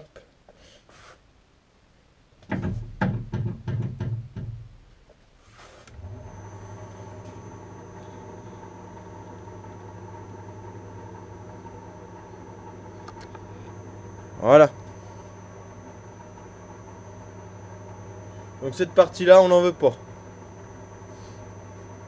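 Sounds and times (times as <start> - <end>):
metal lathe humming: 5.9 - 22.0.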